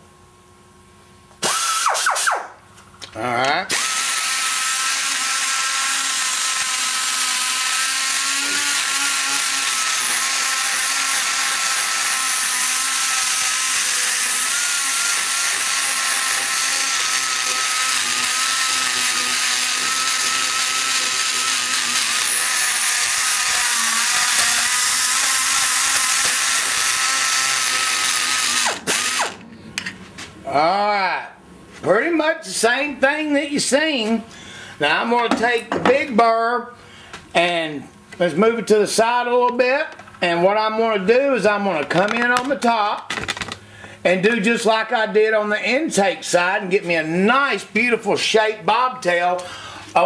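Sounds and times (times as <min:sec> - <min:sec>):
die grinder whining: 0:01.4 - 0:02.5, 0:03.1 - 0:29.6.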